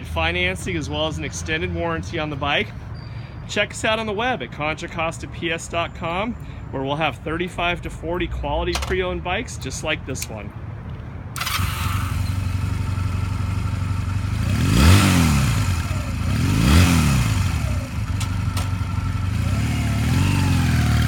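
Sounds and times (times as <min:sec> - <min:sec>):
motorcycle engine revving: 0:11.4 - 0:21.0.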